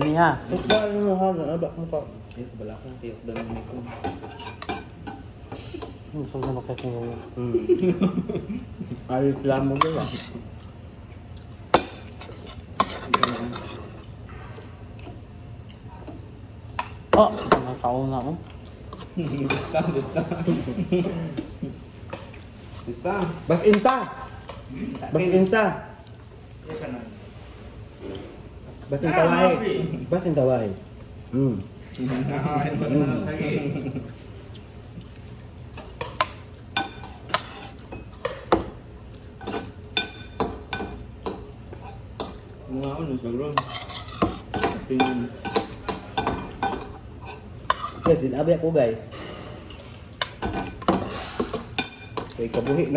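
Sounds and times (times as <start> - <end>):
spoons clinking on dishes: 39.4 - 42.5, 43.6 - 48.2, 49.1 - 52.9.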